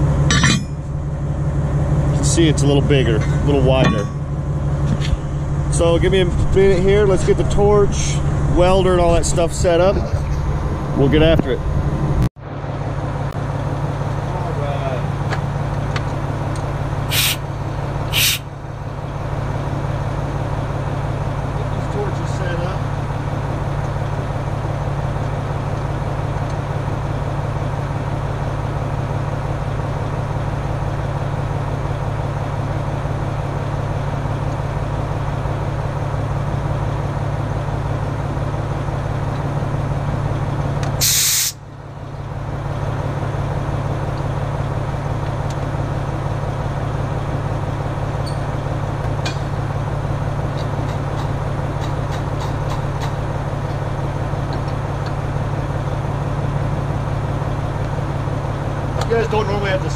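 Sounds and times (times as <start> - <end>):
engine idling low hum: 0.0 - 59.9
hiss of escaping gas: 17.1 - 17.4, 18.1 - 18.5, 41.0 - 41.6.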